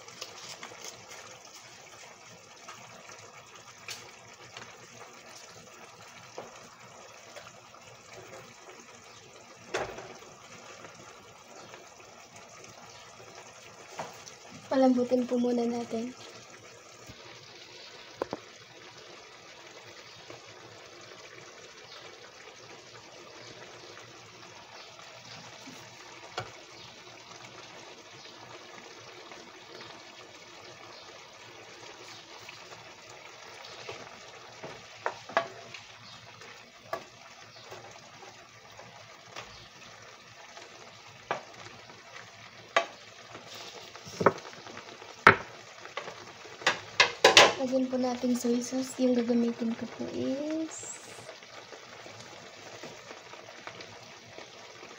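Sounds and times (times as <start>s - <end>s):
beef sizzling in frying pan: 0.0s - 54.9s
wooden spatula knocking pan: 34.6s - 35.6s, 44.1s - 44.5s, 45.2s - 45.6s, 46.6s - 47.6s.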